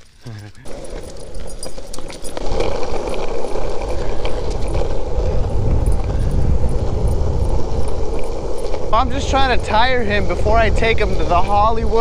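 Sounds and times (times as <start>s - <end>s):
longboard wheels rolling on asphalt: 0.0s - 12.0s.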